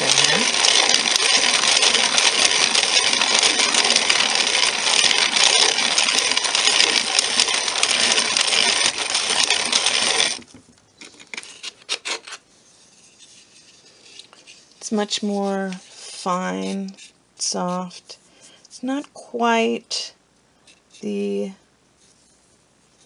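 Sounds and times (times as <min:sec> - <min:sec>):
hand coffee grinder grinding beans: 0:00.0 - 0:12.4, 0:13.7 - 0:18.2.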